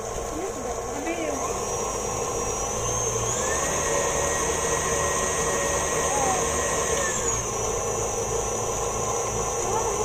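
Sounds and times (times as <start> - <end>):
stand mixer motor whine: 0.0 - 10.0.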